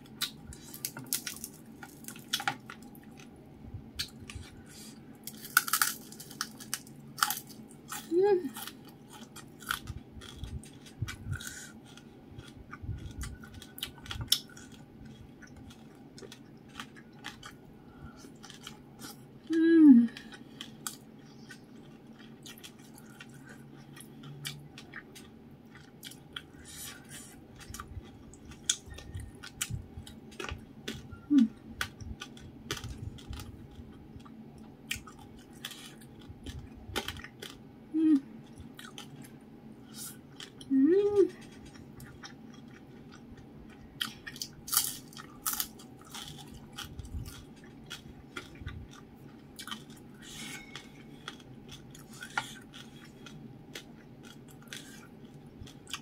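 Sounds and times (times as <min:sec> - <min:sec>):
person chewing with wet clicks: 0:00.0 - 0:03.4, 0:04.0 - 0:19.6, 0:20.2 - 0:31.2, 0:31.8 - 0:37.6, 0:38.4 - 0:40.7, 0:41.3 - 0:56.0
person humming mm: 0:19.5 - 0:20.3, 0:31.3 - 0:31.6, 0:37.9 - 0:38.3.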